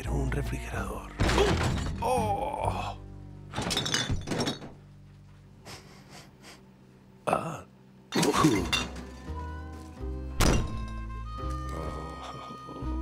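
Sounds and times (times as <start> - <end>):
household objects clattering and crashing: 1.2 - 2.2, 3.5 - 4.9, 8.2 - 11.1
music score: 8.6 - 13.0.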